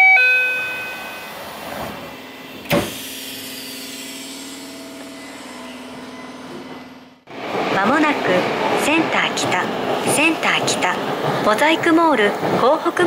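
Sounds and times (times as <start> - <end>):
two-note door chime: 0.0 - 1.4
low hum of train car: 0.0 - 13.0
train doors closing thud: 1.7 - 3.1.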